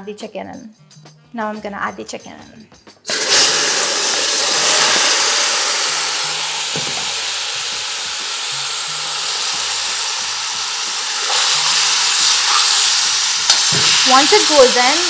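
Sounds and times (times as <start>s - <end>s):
chicken sizzling in a pot: 3.1s - 15.0s
metal spoon stirring: 11.3s - 14.8s.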